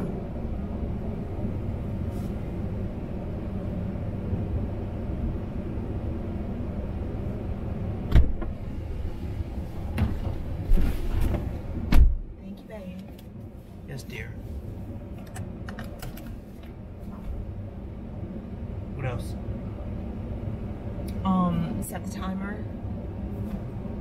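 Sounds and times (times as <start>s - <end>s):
car door opening and shutting: 8.0s - 8.7s, 9.8s - 12.2s.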